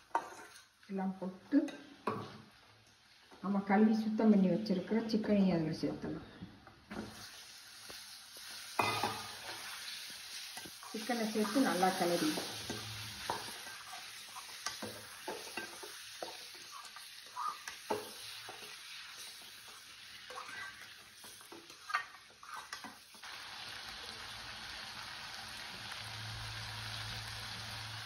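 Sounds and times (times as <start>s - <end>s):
spatula scraping and tapping pan: 0.0s - 0.8s, 10.5s - 23.1s
chicken frying in oil: 7.1s - 28.0s.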